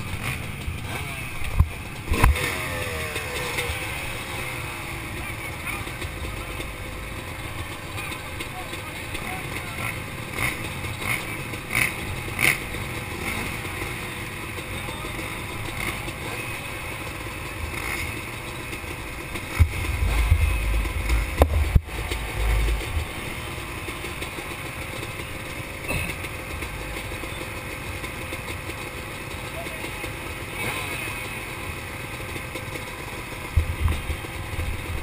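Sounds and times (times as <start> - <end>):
motocross bikes idling: 0.0 - 35.0
low rumble with sharp knocks: 19.4 - 23.5, 33.5 - 35.0.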